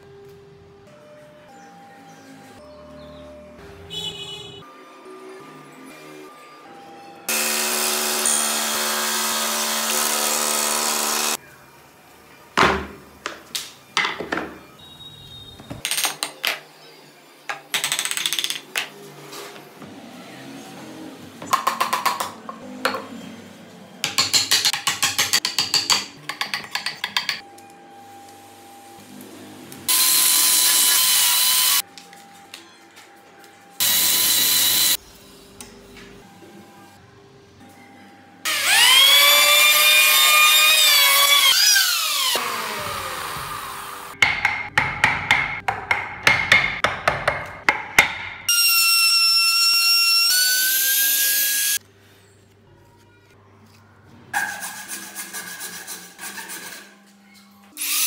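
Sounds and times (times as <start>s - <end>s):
power tool whining: 7.3s - 11.4s, 38.5s - 44.1s
router cutting into wood: 7.3s - 11.4s, 38.5s - 44.0s.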